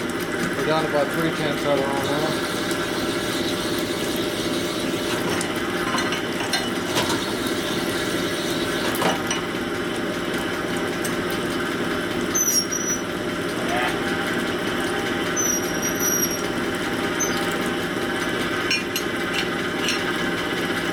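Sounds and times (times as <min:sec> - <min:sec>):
honing machine running: 0:11.8 - 0:20.9.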